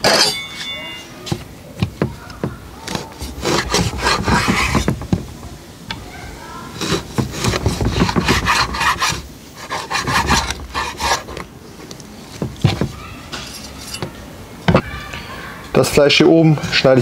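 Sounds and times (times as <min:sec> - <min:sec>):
knife scraping along bone: 0:02.8 - 0:04.9, 0:06.7 - 0:11.4.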